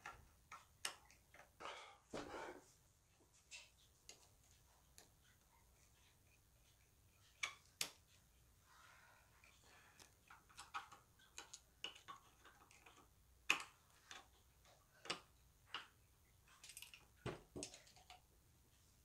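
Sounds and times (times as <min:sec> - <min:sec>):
small metallic clicks and taps: 0:09.4 - 0:18.3.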